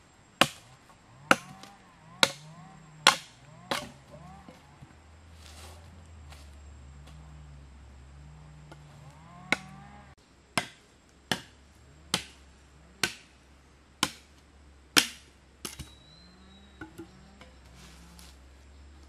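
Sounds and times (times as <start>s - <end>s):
steady low hum: 0.0s - 19.0s
tool striking wood: 1.3s - 4.6s, 9.5s - 9.7s, 10.6s - 12.4s, 13.0s - 13.3s, 14.0s - 14.3s, 15.0s - 15.9s.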